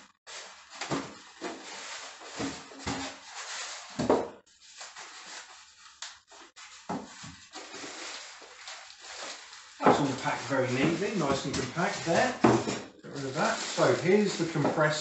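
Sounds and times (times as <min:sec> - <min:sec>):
polystyrene rubbing and scraping: 0:00.3 - 0:15.0.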